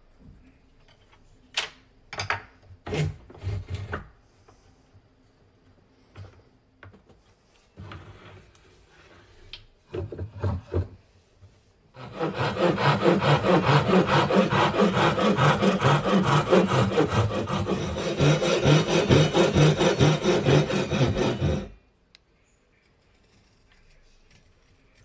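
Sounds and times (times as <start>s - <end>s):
handsaw cutting wood: 12.0s - 21.8s.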